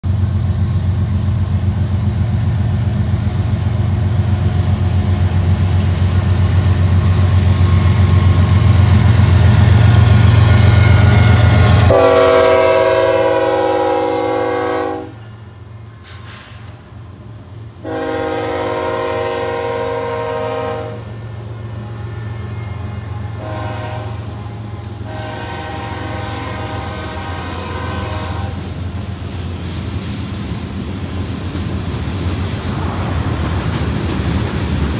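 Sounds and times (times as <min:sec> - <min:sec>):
diesel locomotive rumble: 0:00.0 - 0:34.9
train air horn: 0:10.5 - 0:16.7, 0:17.8 - 0:21.2, 0:21.8 - 0:28.6.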